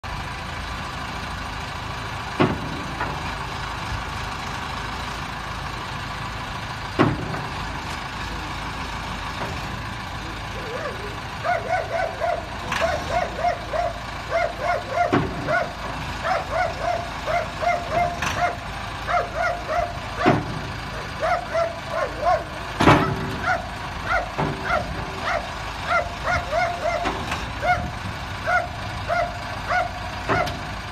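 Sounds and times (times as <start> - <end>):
backhoe engine running: 0.0 - 30.9
dog barking: 10.8 - 20.4, 21.0 - 27.8, 28.5 - 30.6.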